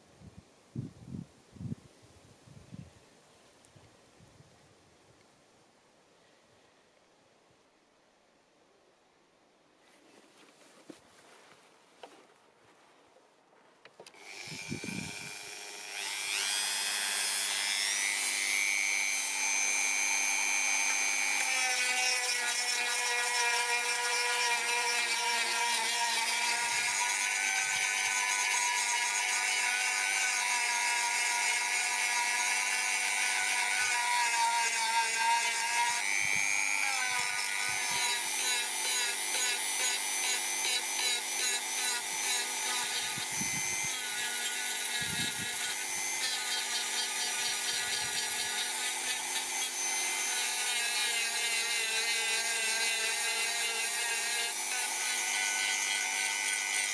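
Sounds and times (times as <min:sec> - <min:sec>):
rotary tool motor whine: 0:14.0 - 0:56.9.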